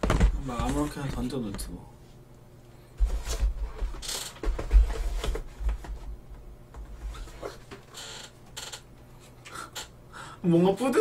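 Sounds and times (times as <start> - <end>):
cardboard scraping and rustling: 3.0 - 5.8.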